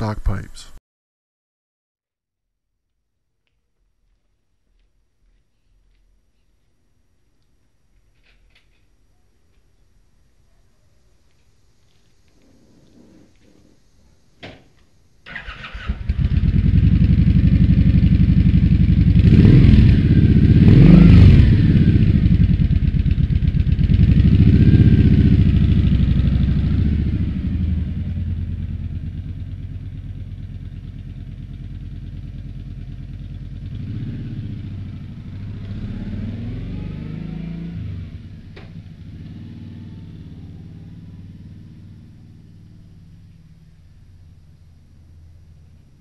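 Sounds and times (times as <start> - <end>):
motorcycle riding off: 15.2 - 46.0
motorcycle engine idling and revving: 15.3 - 46.0.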